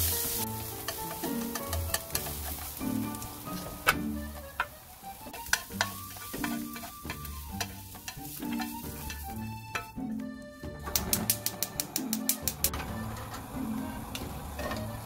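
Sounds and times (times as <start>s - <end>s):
carrots sizzling in a frying pan: 0.0s - 10.0s
chopsticks clicking against pan: 0.2s - 10.3s, 10.9s - 12.8s.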